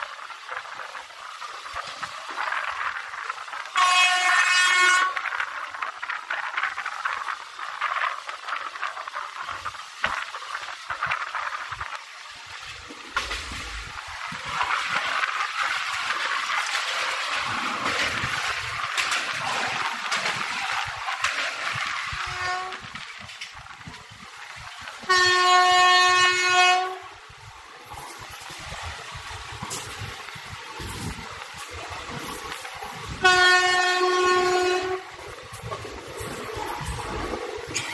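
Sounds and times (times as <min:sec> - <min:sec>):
train wheels rolling: 0:00.0 - 0:37.9
train horn blast: 0:03.7 - 0:05.3, 0:22.1 - 0:22.9, 0:25.0 - 0:27.2, 0:33.2 - 0:35.2.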